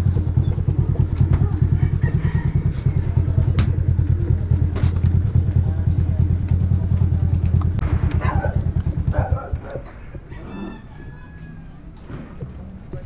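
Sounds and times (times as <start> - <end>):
motorcycle engine running: 0.0 - 10.4.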